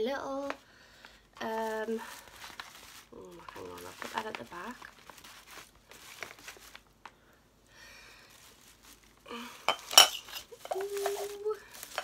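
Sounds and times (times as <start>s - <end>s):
tissue paper rustling: 0.3s - 12.0s
ceramic clink: 9.7s - 10.8s.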